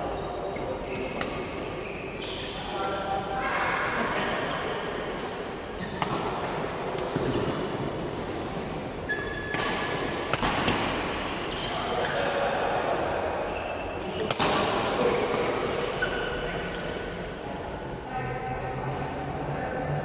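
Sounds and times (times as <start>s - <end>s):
shoes squeaking on floor: 1.7s - 2.8s, 9.0s - 10.0s, 11.4s - 12.2s, 13.5s - 14.3s, 15.9s - 16.6s
racket hitting shuttlecock: 5.2s - 7.8s, 8.4s - 13.1s, 14.2s - 15.9s.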